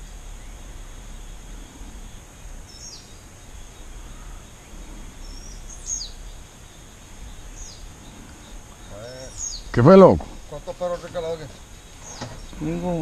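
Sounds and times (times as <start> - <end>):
high insect buzz: 0.0 - 13.0
sweeping bird call: 0.0 - 13.0.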